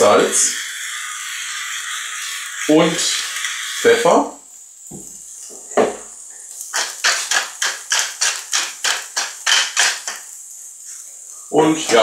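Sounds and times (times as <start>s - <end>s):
pepper mill grinding: 6.5s - 10.4s.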